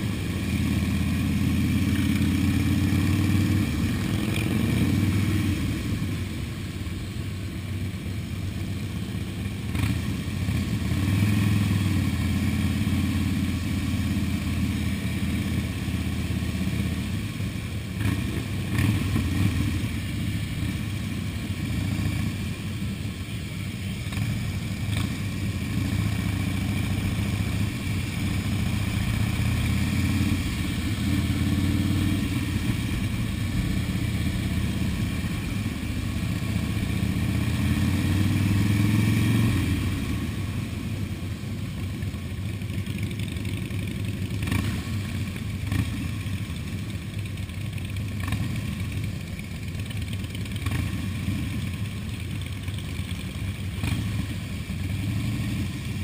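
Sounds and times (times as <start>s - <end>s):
motorcycle engine revving: 0.0s - 56.0s
other motorcycles nearby: 0.0s - 56.0s.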